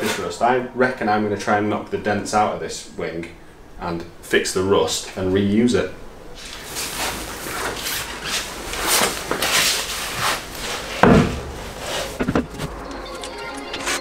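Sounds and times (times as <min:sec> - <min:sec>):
scraping and rustling: 0:06.3 - 0:12.8
loud thump: 0:11.0 - 0:11.6.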